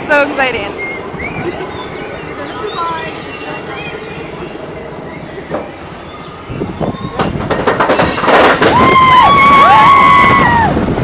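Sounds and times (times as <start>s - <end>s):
roller coaster rattling on track: 0.0s - 11.0s
riders screaming: 8.6s - 10.8s.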